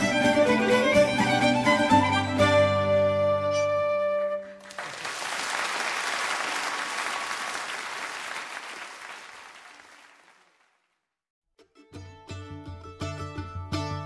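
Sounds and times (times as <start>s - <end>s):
fiddle and harp playing: 0.0s - 4.4s
audience applauding: 4.5s - 11.0s.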